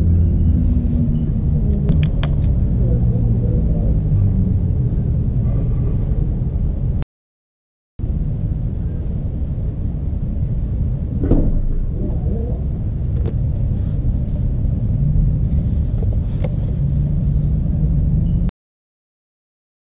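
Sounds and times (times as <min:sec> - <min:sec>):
low outdoor rumble: 0:00.0 - 0:07.0, 0:08.0 - 0:18.5.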